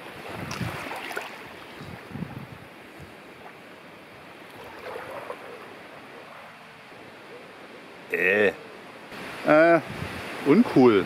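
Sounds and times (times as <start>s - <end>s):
wind over microphone: 0.0s - 3.2s, 9.8s - 10.4s
small waves lapping: 0.0s - 11.0s.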